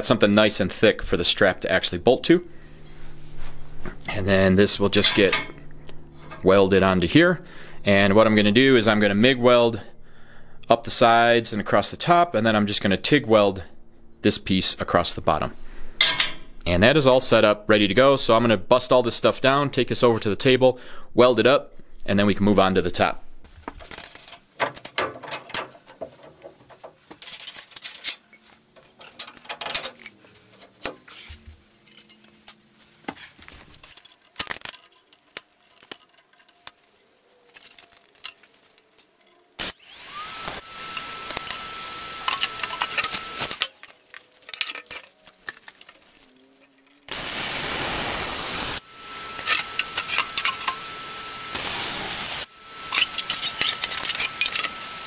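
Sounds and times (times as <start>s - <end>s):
faint steady whine: 0.0s - 19.8s, 48.1s - 55.0s
steel parts and tools clanking: 4.0s - 6.7s, 16.0s - 16.5s, 23.8s - 32.6s, 33.2s - 39.7s, 40.8s - 47.2s, 49.4s - 50.9s, 52.9s - 54.8s
welder arc hissing and crackling: 33.7s - 44.6s, 47.1s - 55.0s.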